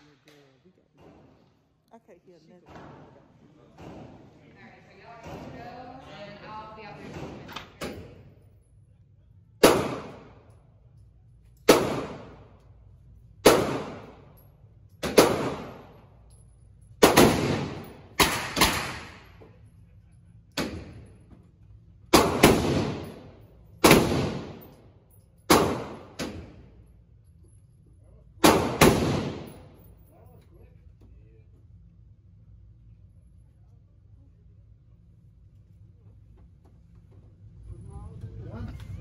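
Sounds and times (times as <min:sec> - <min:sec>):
handgun shots with echo: 0:09.6 - 0:10.5, 0:11.6 - 0:12.5, 0:13.4 - 0:14.4, 0:15.0 - 0:16.0, 0:17.0 - 0:19.4, 0:20.6 - 0:21.1, 0:22.1 - 0:24.8, 0:25.5 - 0:26.7, 0:28.4 - 0:29.8.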